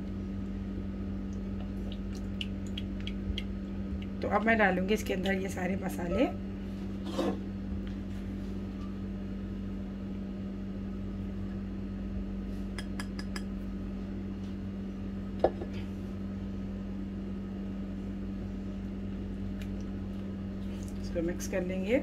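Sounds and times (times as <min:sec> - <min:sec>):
low hum: 0:00.0 - 0:22.0.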